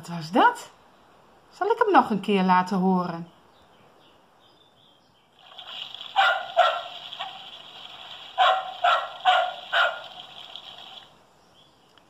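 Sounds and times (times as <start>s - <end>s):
steady hiss: 5.4s - 11.4s
tinny recorded dog barking: 6.1s - 7.6s, 8.2s - 10.5s.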